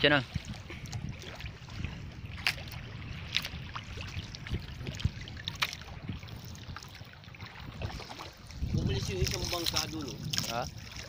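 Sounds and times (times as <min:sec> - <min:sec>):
water lapping against boat hull: 0:00.0 - 0:11.0
clicks and knocks on boat: 0:05.5 - 0:05.8.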